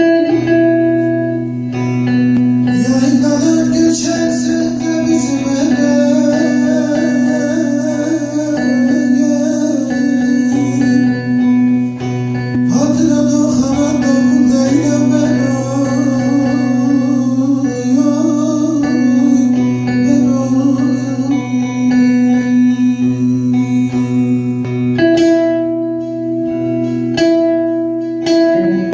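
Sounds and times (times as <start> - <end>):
plucked lute with drone notes: 0.0 - 28.9
man singing folk song: 2.6 - 25.6.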